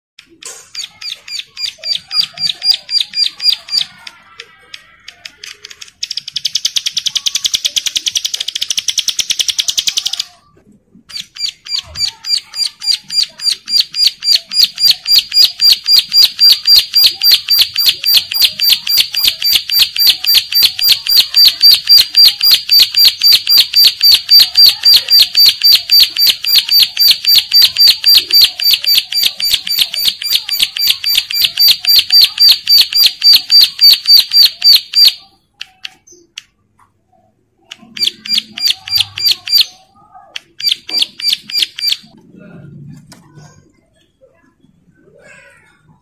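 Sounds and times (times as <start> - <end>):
sharp repeated bird notes: 0.3 - 4.1, 5.9 - 10.3, 11.0 - 36.6, 37.6 - 42.2
bird calling with buzzy trill: 0.7 - 4.1, 11.1 - 36.3, 37.7 - 39.9.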